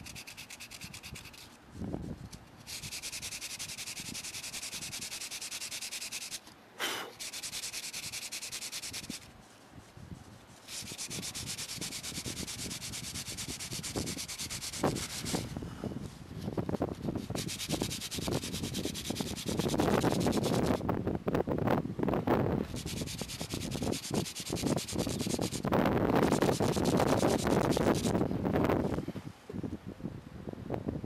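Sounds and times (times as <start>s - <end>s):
sandpaper rubbing: 0.0s - 20.8s, 22.6s - 28.2s.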